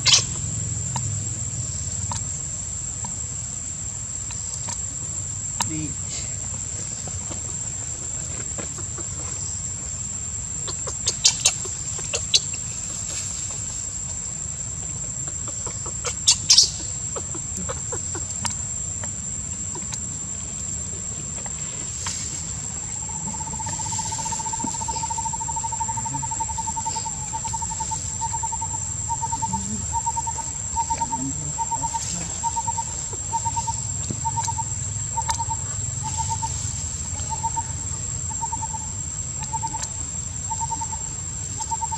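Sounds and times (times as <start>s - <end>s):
high-pitched insect buzz: 21.8s - 41.9s.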